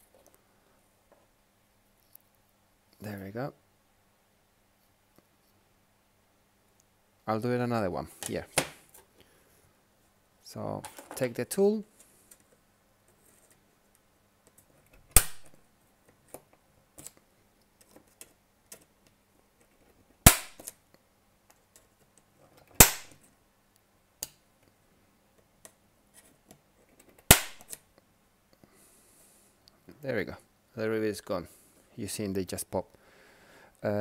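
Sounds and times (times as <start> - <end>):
rivets snapping off: 15.0 - 15.6, 20.2 - 20.8, 22.8 - 23.2, 27.2 - 27.8.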